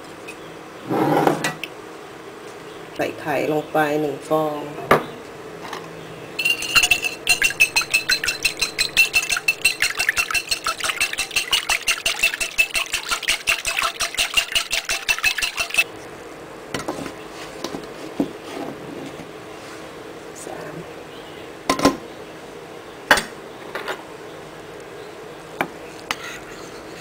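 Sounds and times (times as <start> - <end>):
utensil beating egg in bowl: 6.4 - 15.9.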